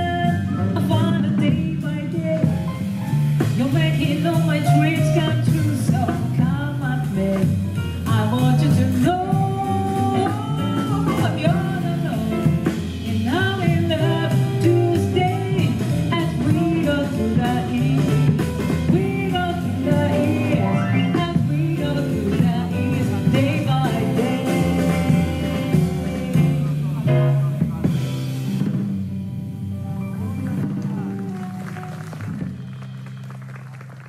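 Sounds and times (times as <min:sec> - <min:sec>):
jazz band playing: 0:00.0 - 0:34.0
person singing: 0:03.6 - 0:27.4.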